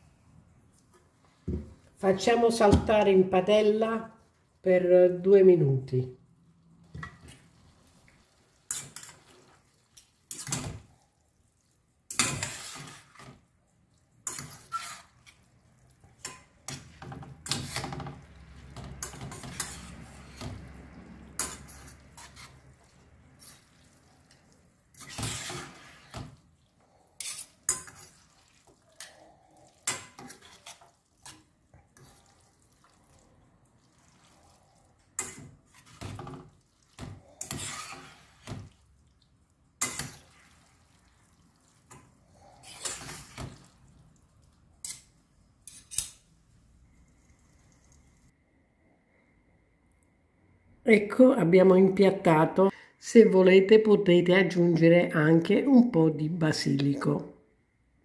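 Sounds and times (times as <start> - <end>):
metal fork scraping frying pan: 8.6 - 10.8, 12.1 - 13.4, 14.2 - 15.5, 16.1 - 18.3, 18.9 - 20.5, 21.3 - 23.8, 24.9 - 26.3, 27.2 - 29.1, 29.8 - 32.3, 37.0 - 38.5, 39.8 - 40.4, 41.9 - 43.7, 44.8 - 46.2.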